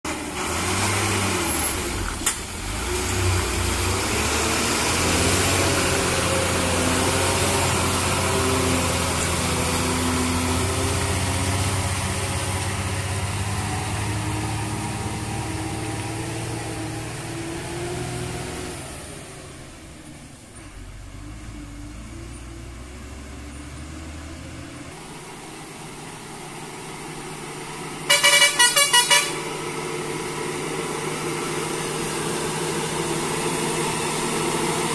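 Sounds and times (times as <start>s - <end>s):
truck diesel engine passing: 0.1s - 34.9s
truck horn toots: 28.0s - 29.6s.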